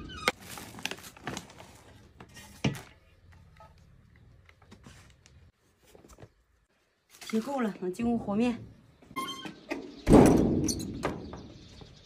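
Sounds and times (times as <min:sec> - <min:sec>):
plastic bags rustling: 0:00.3 - 0:02.9.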